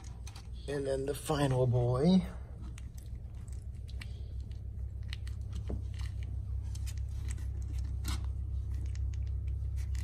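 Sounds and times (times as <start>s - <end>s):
steady low hum: 0.0s - 10.0s
puppy squirming clicks and rustles: 2.5s - 10.0s.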